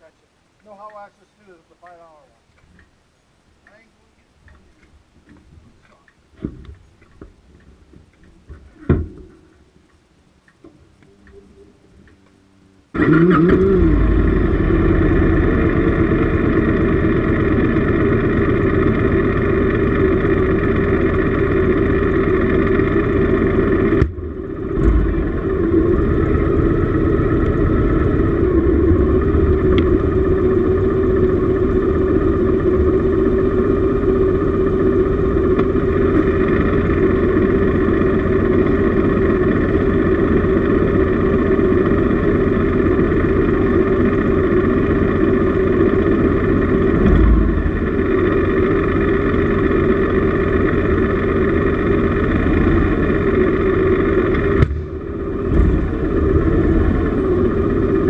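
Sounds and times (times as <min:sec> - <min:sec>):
motorcycle engine running: 0:12.9 - 0:58.0.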